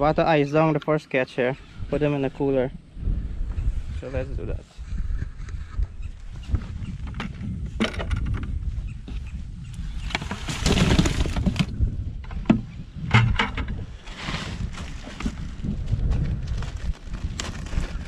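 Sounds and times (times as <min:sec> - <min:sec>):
wind rumble on microphone: 0:01.6 - 0:18.0
knocks from cooler and bucket: 0:10.1 - 0:11.7.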